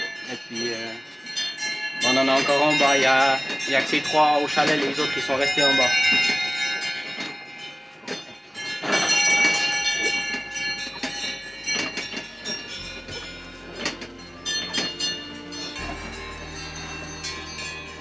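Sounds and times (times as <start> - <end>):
cowbells clanging: 0.0 - 18.0
low sustained musical drone: 9.3 - 18.0.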